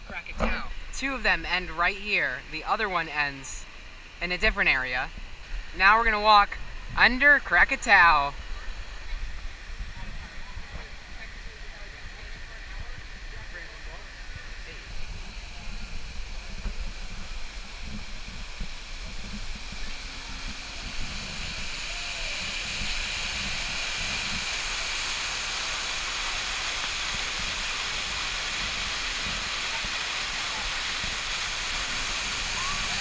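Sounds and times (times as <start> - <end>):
waterfall rushing: 13.6 - 33.0.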